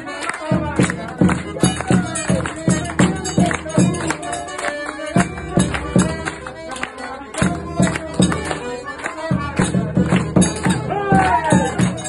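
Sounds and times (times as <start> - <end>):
accordion melody: 0.0 - 12.0
hand clapping: 0.0 - 12.0
bass drum strokes: 5.2 - 6.7.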